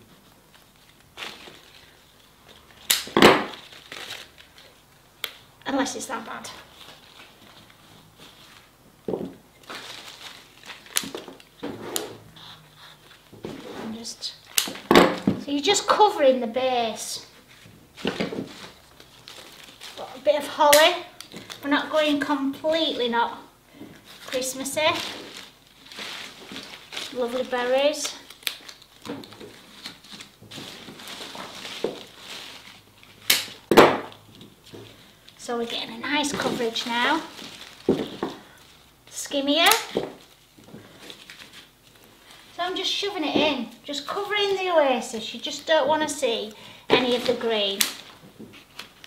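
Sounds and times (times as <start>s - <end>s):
leaves and stems rustling: 0.2s - 5.1s, 5.7s - 8.8s, 9.5s - 12.0s, 16.8s - 23.2s, 24.0s - 49.0s
leaves rustling: 9.6s - 11.1s, 24.1s - 33.3s, 35.7s - 38.8s.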